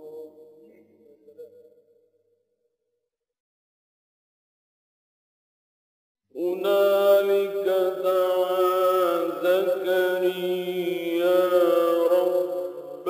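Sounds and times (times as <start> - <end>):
man chanting melodically: 6.4 - 13.0.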